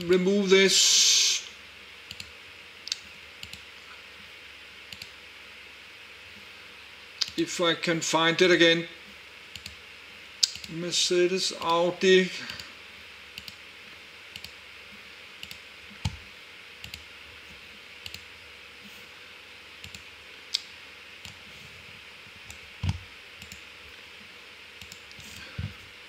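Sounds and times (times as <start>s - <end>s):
faint steady hiss: 0.0s - 26.0s
computer mouse clicks: 2.1s - 2.3s, 2.9s - 3.6s, 4.9s - 5.2s, 9.5s - 9.8s, 10.4s - 10.7s, 13.4s - 13.6s, 14.3s - 14.6s, 15.4s - 16.2s, 16.8s - 17.1s, 18.0s - 18.3s, 19.8s - 21.4s, 22.5s - 23.6s, 24.8s - 25.4s.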